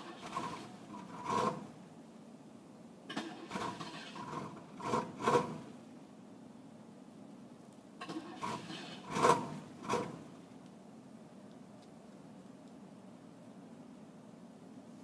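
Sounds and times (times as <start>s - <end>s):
car starter motor cranking: 0.0s - 1.7s, 3.1s - 5.6s, 8.0s - 10.2s.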